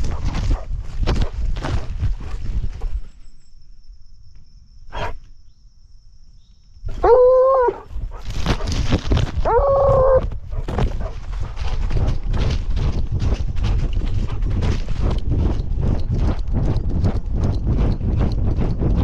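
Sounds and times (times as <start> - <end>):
dog footfalls: 8.1 - 17.2
hound baying: 9.4 - 12.2.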